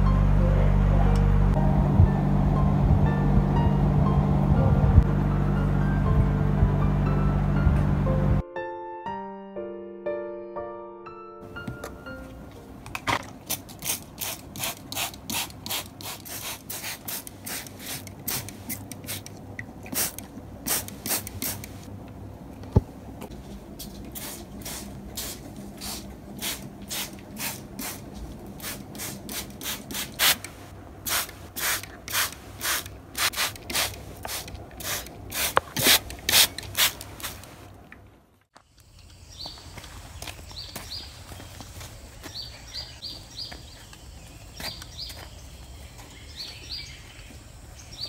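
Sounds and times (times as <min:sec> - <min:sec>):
spray bottle squirts: 0:13.5 - 0:19.3, 0:31.1 - 0:37.5.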